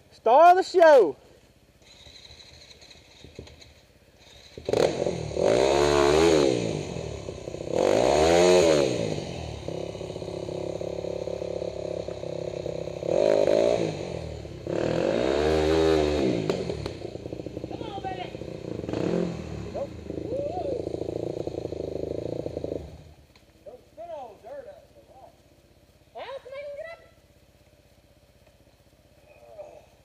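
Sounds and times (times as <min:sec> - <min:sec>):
dirt bike engine revving: 0:04.2 - 0:23.3.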